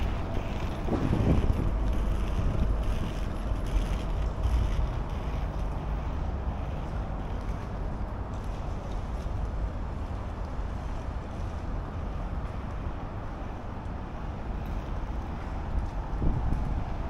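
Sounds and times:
wind on microphone: 0.0 - 7.3, 15.4 - 17.0
low traffic rumble: 0.0 - 17.0.

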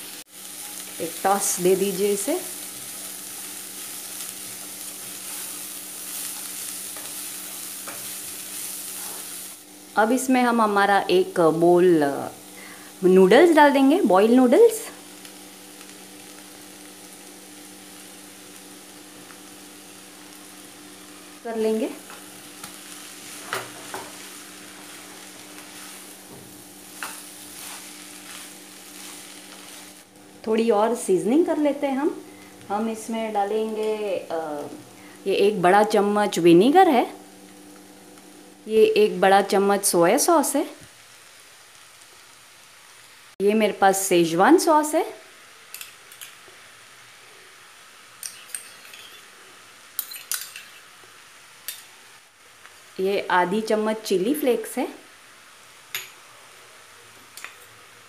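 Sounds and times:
faint steady hiss: 0.0 - 58.0
food sizzling in a pan: 0.0 - 58.0
spoon clinking in steel bowl: 48.2 - 49.3, 50.0 - 50.8.

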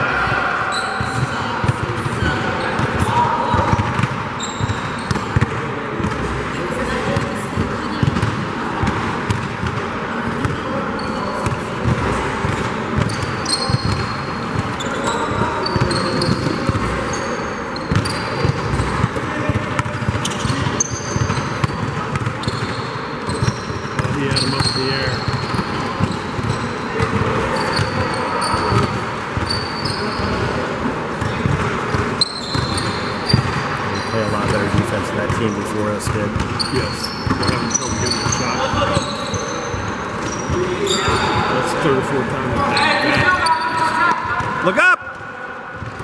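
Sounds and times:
sneakers squeaking: 0.0 - 46.0
basketball bouncing on floor: 2.8 - 6.2, 17.9 - 28.0, 31.2 - 33.6.

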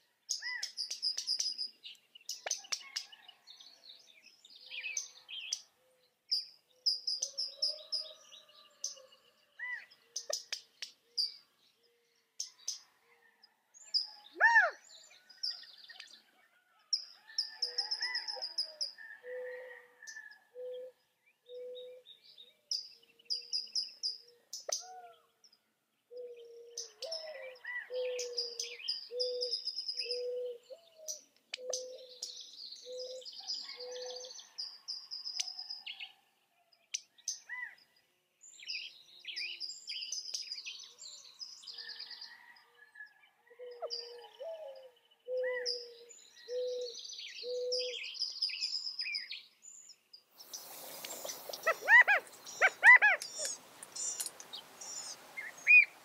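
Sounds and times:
bird chirps and trills: 43.6 - 56.0.

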